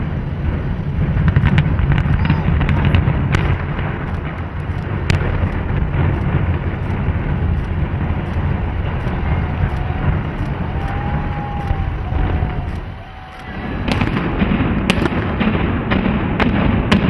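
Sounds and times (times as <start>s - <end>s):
rumble of collapsing structure: 0.0s - 16.5s
sharp crack: 0.0s - 17.0s.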